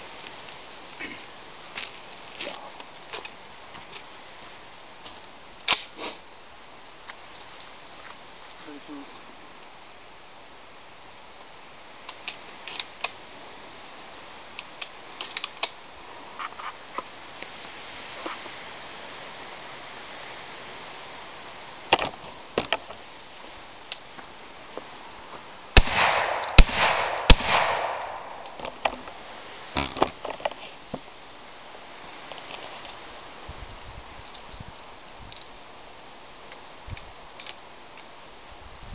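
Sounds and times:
gunshots: 25.8 - 28.7.

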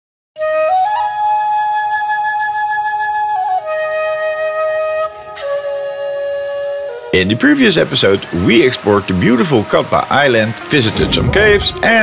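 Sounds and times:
slow flute melody: 0.4 - 12.0.

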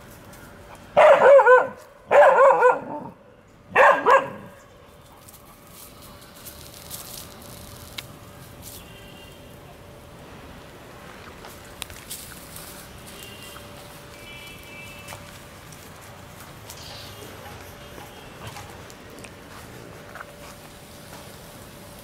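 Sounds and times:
dogs barking: 1.0 - 4.6, 17.1 - 18.7.

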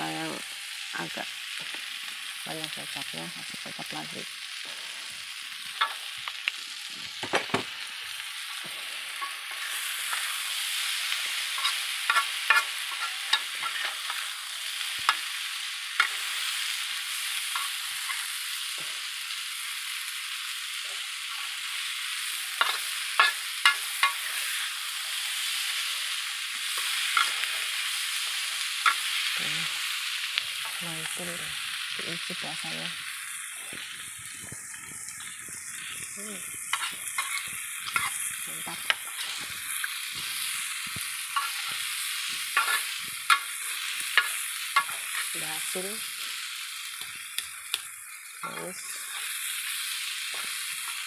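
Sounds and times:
food sizzling in a wok: 0.0 - 51.0
metal spatula scraping pan: 42.6 - 43.4.

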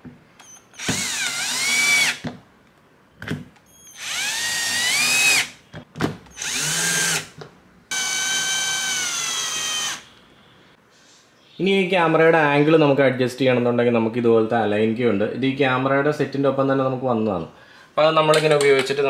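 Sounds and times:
cordless drill motor whine: 0.4 - 2.2, 3.8 - 5.5, 6.4 - 7.3, 7.9 - 10.0.

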